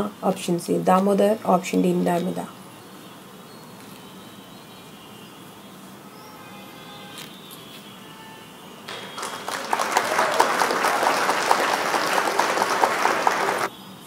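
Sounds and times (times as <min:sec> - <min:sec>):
crowd clapping: 0:08.9 - 0:13.7.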